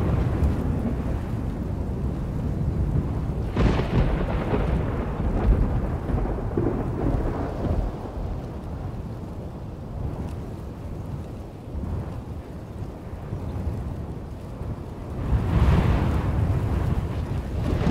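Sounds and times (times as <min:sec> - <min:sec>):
steady rain: 0:00.0 - 0:17.9
thunder crack and rumble: 0:00.0 - 0:17.9.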